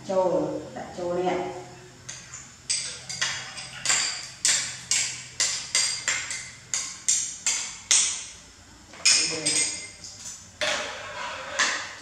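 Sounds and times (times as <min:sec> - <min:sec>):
metal spoon scraping ceramic bowl: 0:10.6 - 0:12.0.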